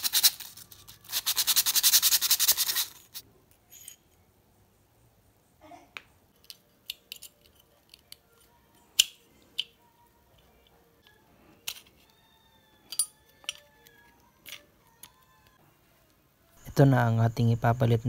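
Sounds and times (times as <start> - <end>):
metal parts clicking and knocking: 6.4 - 9.8, 12.9 - 15.3.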